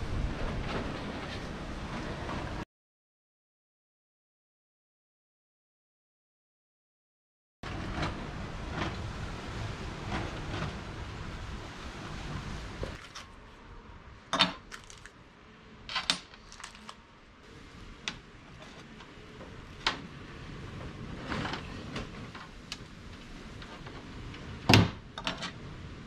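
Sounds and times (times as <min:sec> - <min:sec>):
plastic bag rustling: 0:14.6 - 0:15.2, 0:16.0 - 0:17.0.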